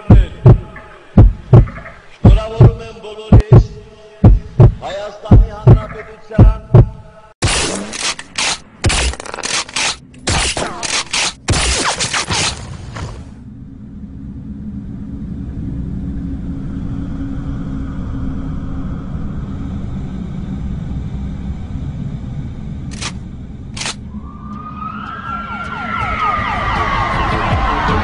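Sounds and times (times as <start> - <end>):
low rumble: 0.0 - 7.1, 13.2 - 25.8
sharp clicks: 22.9 - 23.2, 23.8 - 24.0
siren wailing: 24.1 - 28.0.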